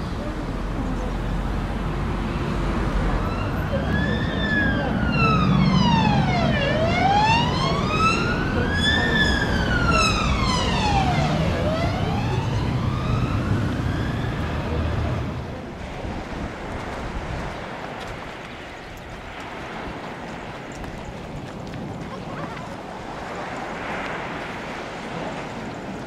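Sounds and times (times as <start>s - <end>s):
siren wailing: 3.2s - 15.0s.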